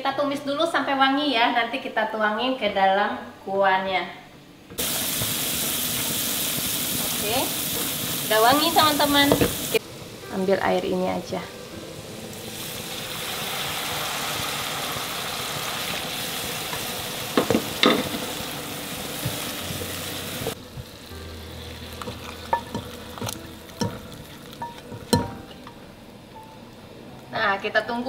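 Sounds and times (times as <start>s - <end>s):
paste sizzling in frying pan: 4.8s - 26.9s
utensils knocking on pan: 8.5s - 9.6s, 16.7s - 18.4s, 22.0s - 25.8s.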